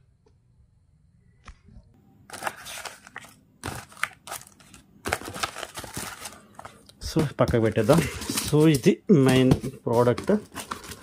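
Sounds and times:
paper and plastic rustling: 0:02.3 - 0:11.0.

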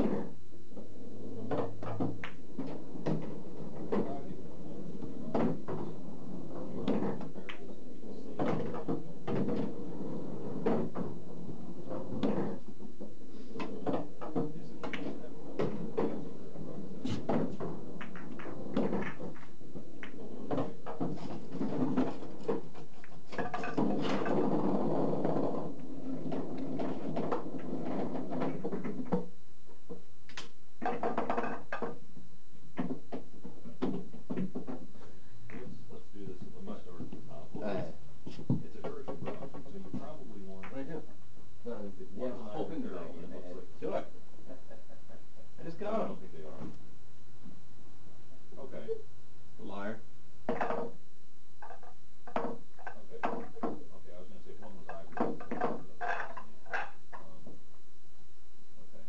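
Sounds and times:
pool balls clacking: 0:00.0 - 0:32.1, 0:32.8 - 0:35.7, 0:50.4 - 0:51.0, 0:51.6 - 0:53.9, 0:54.5 - 0:57.6
balls rolling and clattering: 0:00.0 - 0:47.6, 0:50.4 - 0:57.8.

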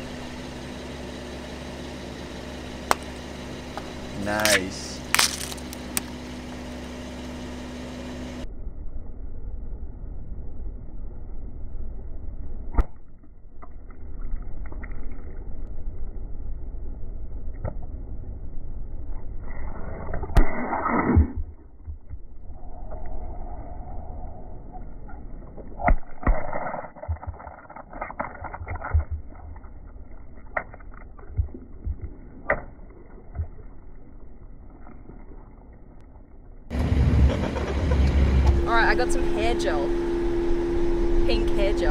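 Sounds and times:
low engine rumble: 0:00.0 - 0:12.7, 0:27.2 - 0:41.9
toys bursting with pops and crunches: 0:04.4 - 0:06.2, 0:25.6 - 0:33.7.

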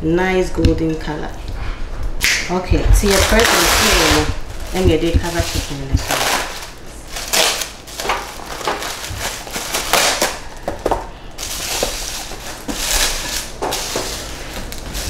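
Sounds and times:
plastic cling wrap crinkling: 0:03.0 - 0:15.0.

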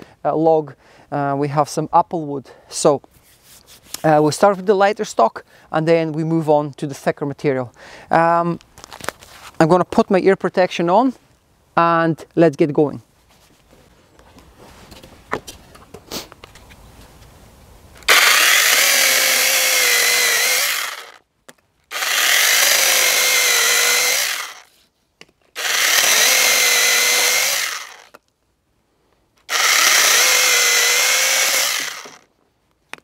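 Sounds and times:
cordless chainsaw cutting wood: 0:18.1 - 0:21.2, 0:21.9 - 0:24.8, 0:25.6 - 0:28.2, 0:29.5 - 0:32.3.

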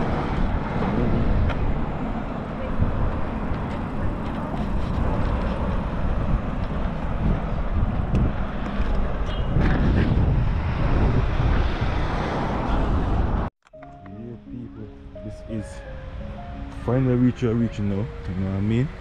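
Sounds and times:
wind buffeting microphone: 0:00.0 - 0:13.5
road traffic passing: 0:00.0 - 0:19.0.

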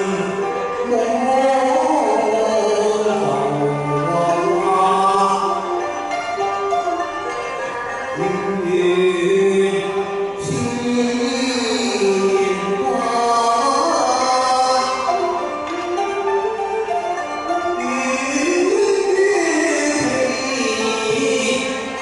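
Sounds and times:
man singing: 0:00.0 - 0:06.1, 0:08.2 - 0:16.0, 0:17.6 - 0:22.0
backing music: 0:00.0 - 0:22.0.

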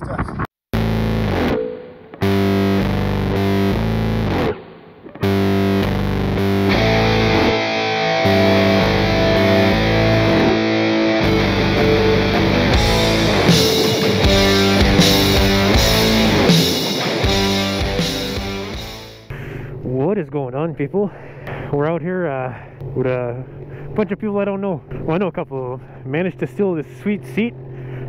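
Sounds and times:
distorted electric guitar rock music: 0:00.8 - 0:19.3.

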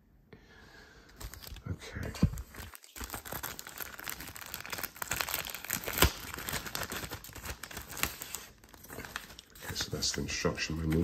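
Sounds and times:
plastic bag crinkling: 0:01.2 - 0:11.0
sharp plastic crack: 0:02.7 - 0:08.2.

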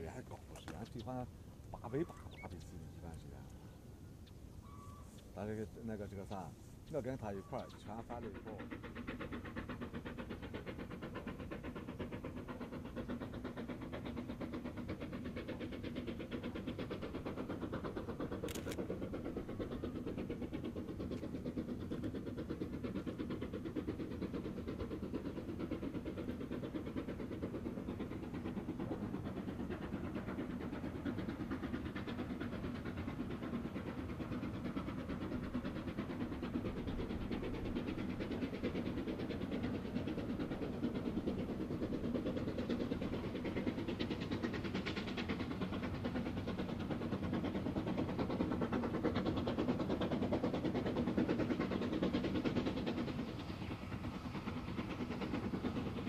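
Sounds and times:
steam locomotive exhaust beating: 0:00.0 - 0:56.0.

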